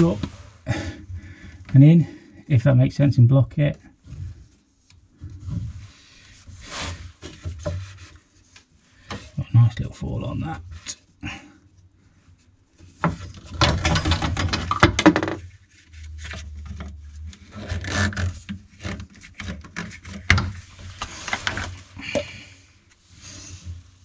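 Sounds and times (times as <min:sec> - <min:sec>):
plastic pipe rubbing and rustling: 0:00.0 - 0:01.9, 0:03.5 - 0:24.0
plastic fittings clicking and knocking: 0:13.0 - 0:15.4, 0:16.2 - 0:20.6.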